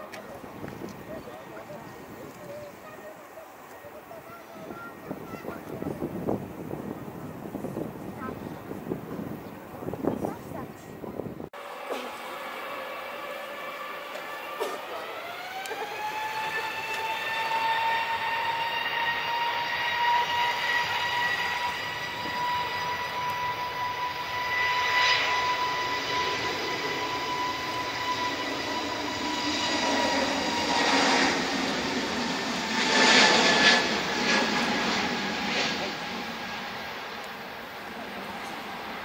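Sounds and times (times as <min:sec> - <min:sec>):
jet engines roaring: 0:00.0 - 0:39.0.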